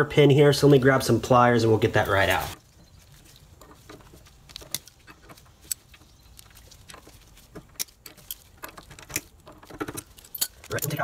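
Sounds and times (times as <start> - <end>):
pliers clicking on metal: 9.9 - 11.0.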